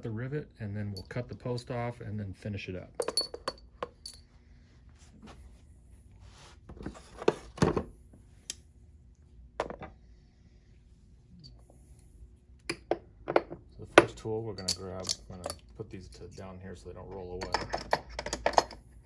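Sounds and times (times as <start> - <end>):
metal tools clinking on a block: 3.0 - 4.2, 14.5 - 16.6.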